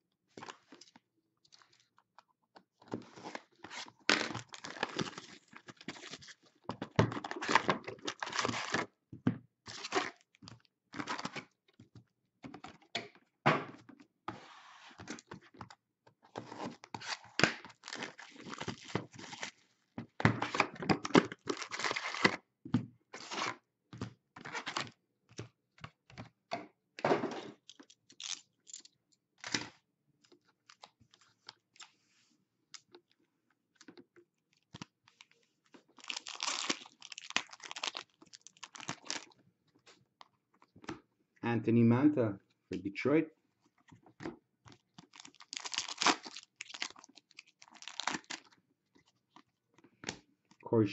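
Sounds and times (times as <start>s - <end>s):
foil packs ripping and crinkling: 3.8s - 6.2s, 7.2s - 8.8s, 16.6s - 19.6s, 20.5s - 22.4s, 28.2s - 28.4s, 35.9s - 39.4s, 45.0s - 48.6s.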